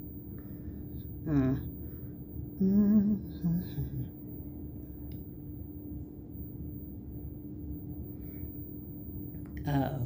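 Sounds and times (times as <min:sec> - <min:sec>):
low room hum: 0:00.0 - 0:10.0
woman's wordless vocal sound: 0:01.2 - 0:01.7, 0:02.6 - 0:04.1.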